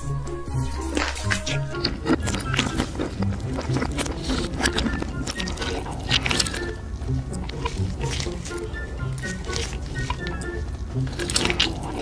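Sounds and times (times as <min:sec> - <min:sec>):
reversed wet mouth clicks and smacks: 0:00.8 - 0:12.0.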